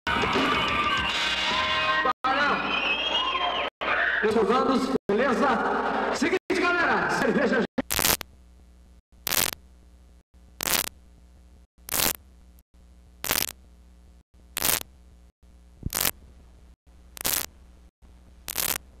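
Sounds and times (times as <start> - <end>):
bursts of static hiss: 7.8 - 19.0
steady low hum: 7.8 - 19.0.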